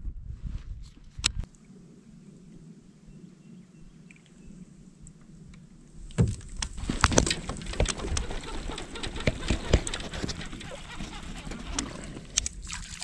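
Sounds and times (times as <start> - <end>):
rustling and sharp knocks: 6.1 - 12.4
clothing rubbing on microphone: 6.5 - 12.6.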